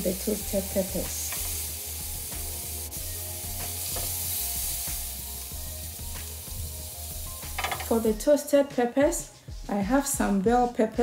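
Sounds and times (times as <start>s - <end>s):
meat sizzling in a grill pan: 0.0s - 8.2s.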